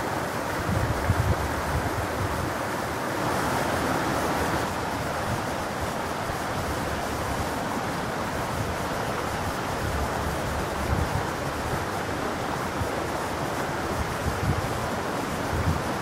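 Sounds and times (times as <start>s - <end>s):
stream babbling over rocks: 0.0s - 16.0s.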